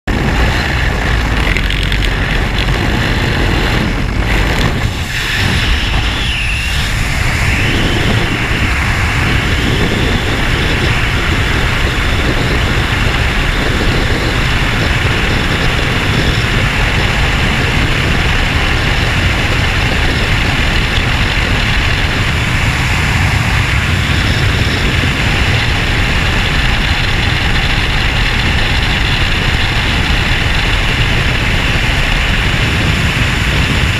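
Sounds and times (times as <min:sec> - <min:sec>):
wind rushing over microphone: 0:00.0 - 0:33.9
aircraft open door noise: 0:00.1 - 0:16.6.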